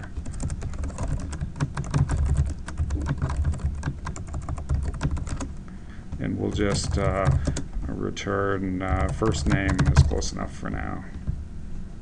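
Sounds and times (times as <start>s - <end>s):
keyboard typing: 0.0s - 7.6s, 8.9s - 10.2s.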